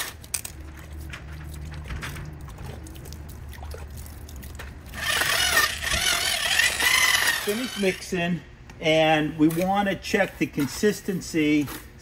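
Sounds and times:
wet mortar slopping and scraping: 0.0s - 8.1s, 9.1s - 12.0s
drill motor hum: 5.0s - 8.0s.

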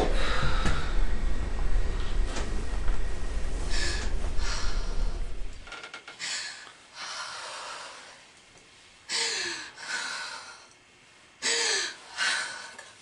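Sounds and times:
person gasping breaths: 0.0s - 1.1s, 11.4s - 13.0s.

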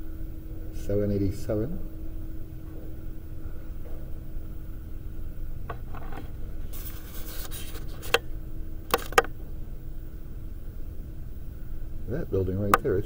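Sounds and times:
faint hum: 0.0s - 13.0s
sharp clicks: 8.9s - 9.3s.

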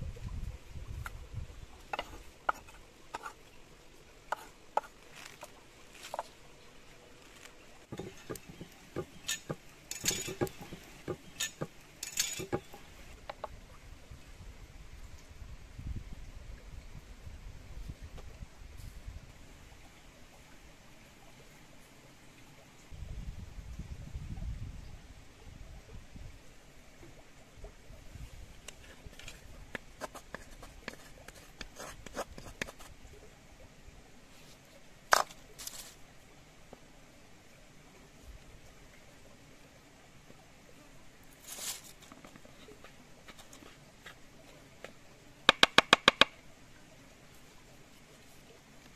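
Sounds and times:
wooden spoon tapping bowl: 7.9s - 11.7s
utensils knocking on wooden board: 7.9s - 12.8s, 45.5s - 46.3s
short rustle: 35.6s - 36.0s, 41.4s - 44.2s.

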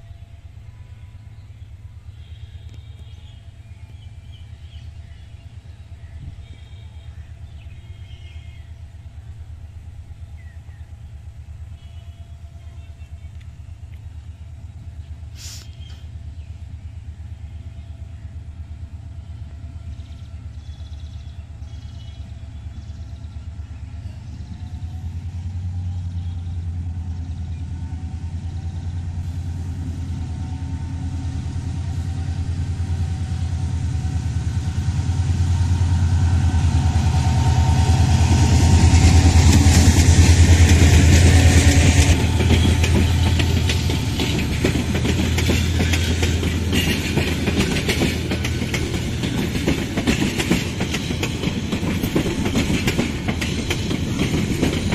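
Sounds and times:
diesel locomotive engine rumble: 0.0s - 54.9s
train wheels clattering on rail joints: 37.7s - 54.9s.

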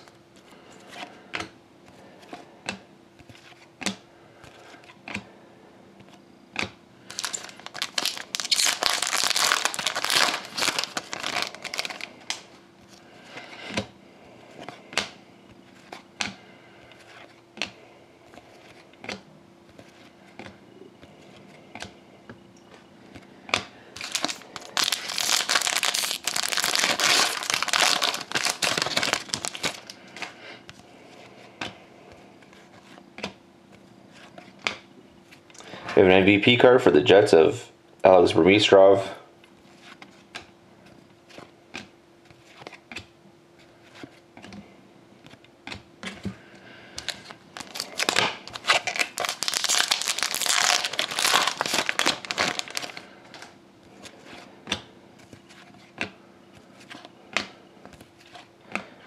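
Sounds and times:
foil wrapper crinkling: 7.0s - 12.5s, 24.0s - 30.3s, 47.0s - 53.6s.

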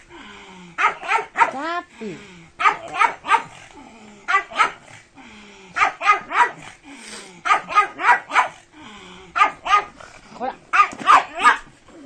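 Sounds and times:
dog barking: 0.8s - 1.6s, 2.6s - 3.6s, 4.3s - 4.8s, 5.8s - 6.7s, 7.4s - 8.6s, 9.4s - 10.0s, 10.7s - 11.7s.

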